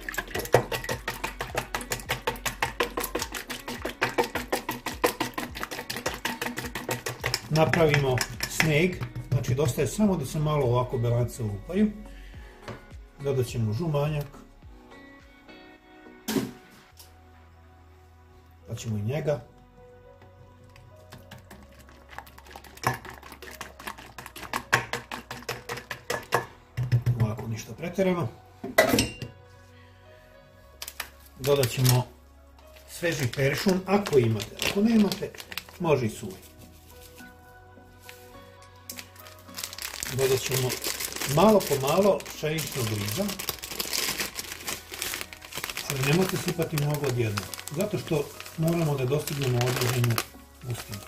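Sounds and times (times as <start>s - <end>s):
whisk clicking against bowl: 0.1s - 9.3s, 21.4s - 27.2s.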